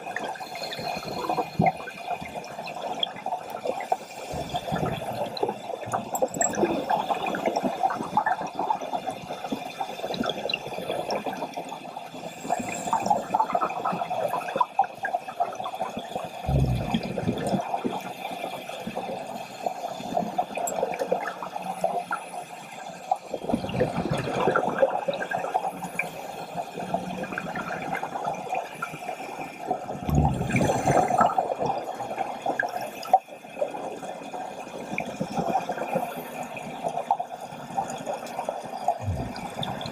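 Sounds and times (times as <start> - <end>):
underwater hiss: 0.3 - 6.0, 12.2 - 14.4, 27.8 - 33.2
scuba exhalation bubbles: 4.2 - 7.7, 16.4 - 17.9, 29.8 - 32.0, 38.9 - 39.9.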